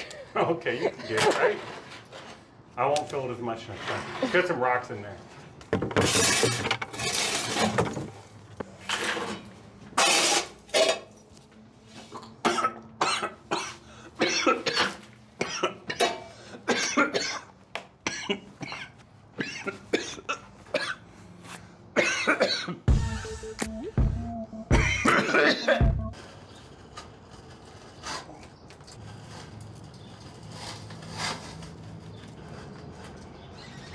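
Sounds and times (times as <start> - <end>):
shovel scraping rocks on concrete: 1.0 - 5.1, 5.9 - 11.4, 26.2 - 33.9.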